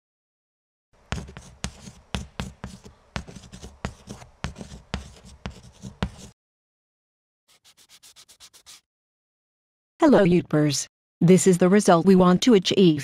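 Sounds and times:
chalk tapping and scratching on blackboard: 1.1 - 6.4, 7.5 - 8.9.

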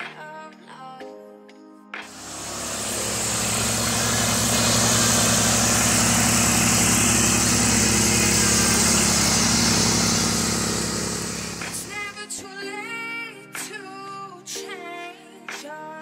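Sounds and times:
lawn mower engine running: 2.1 - 12.2.

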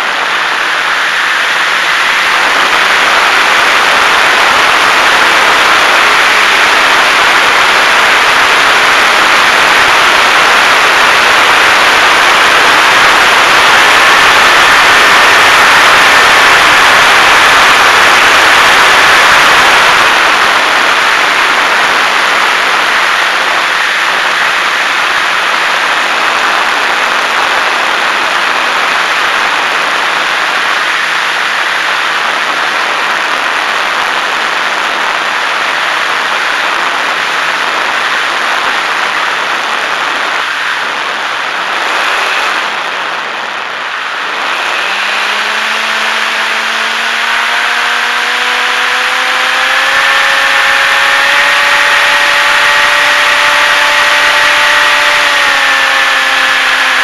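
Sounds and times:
electric motor whine: 0.0 - 57.0
wind rush and propeller noise: 0.0 - 57.0.

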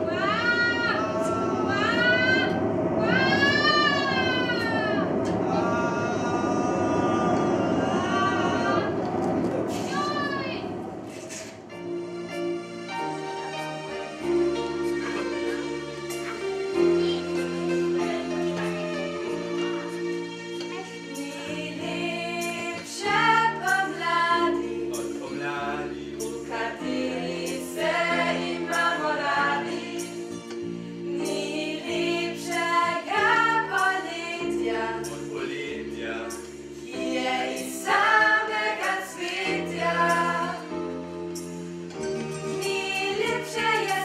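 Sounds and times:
group of voices singing: 0.0 - 11.8, 21.2 - 40.9, 42.5 - 44.0
held chords accompaniment: 0.0 - 44.0.

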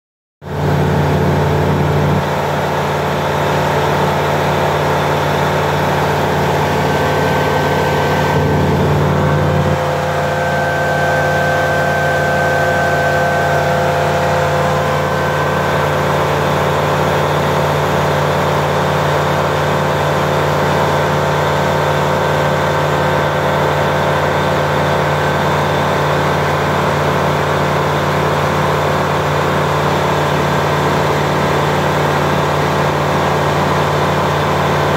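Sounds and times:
aircraft engine and propeller drone: 0.5 - 34.9.

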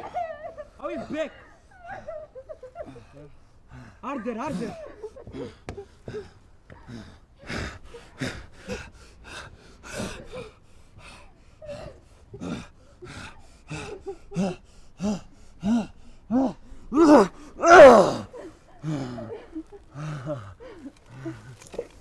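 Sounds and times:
person gasping for breath: 5.3 - 22.0
person groaning: 13.7 - 19.2.

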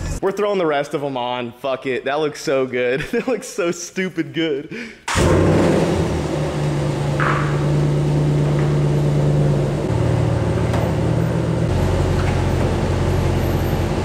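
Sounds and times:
pickup engine idling: 6.0 - 14.0.

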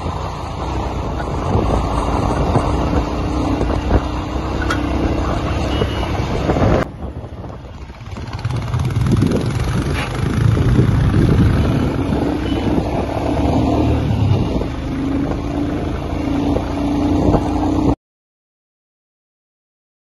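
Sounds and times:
wind rush while riding: 0.0 - 18.0
motorcycle engine running: 7.0 - 17.7.

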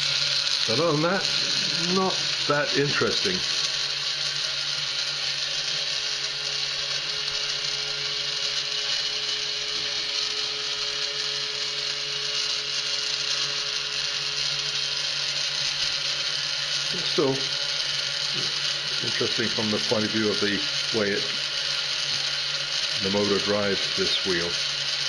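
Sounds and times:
toy motor whirring: 0.0 - 25.0.

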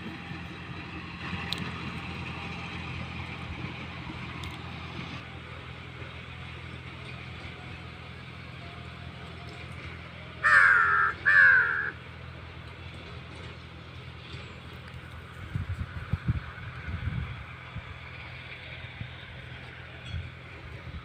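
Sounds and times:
tractor diesel engine hum: 0.0 - 21.0
crow cawing: 10.4 - 12.0.

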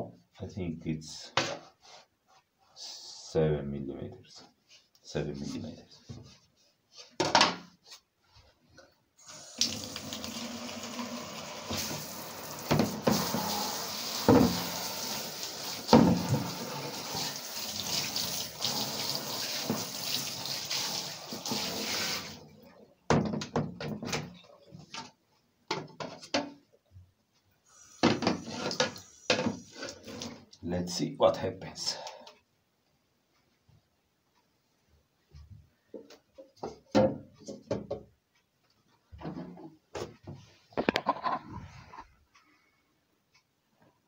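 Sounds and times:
shower water spraying on boards: 9.3 - 22.4.

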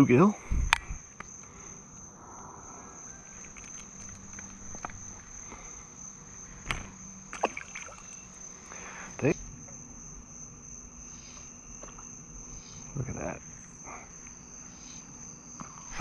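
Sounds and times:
insect chorus: 0.0 - 16.0
fish splash: 6.7 - 8.2.

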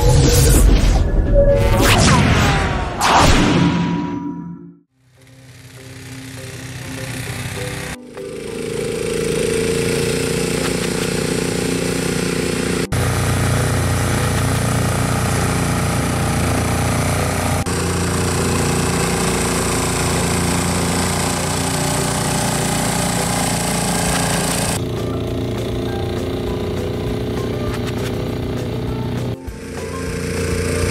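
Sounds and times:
atv engine drone: 5.0 - 30.9
snowblower throwing snow: 9.5 - 30.9.

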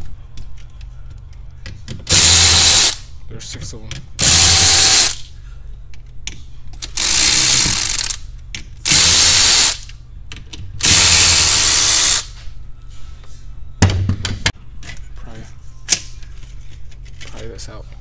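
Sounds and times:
electric ratchet running: 2.1 - 3.0, 4.2 - 5.3, 6.9 - 8.2, 8.8 - 9.9, 10.8 - 12.3.

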